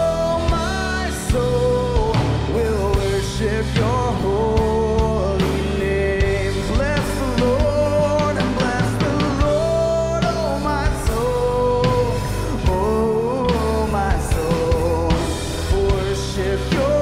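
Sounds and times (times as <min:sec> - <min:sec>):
acoustic guitar: 0:00.0 - 0:17.0
drum kit beat: 0:00.0 - 0:17.0
man singing: 0:00.0 - 0:17.0.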